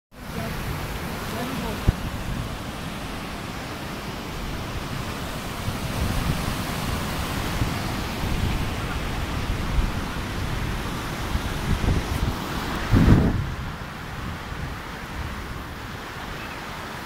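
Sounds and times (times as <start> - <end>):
river rushing over rocks: 0.1 - 17.0.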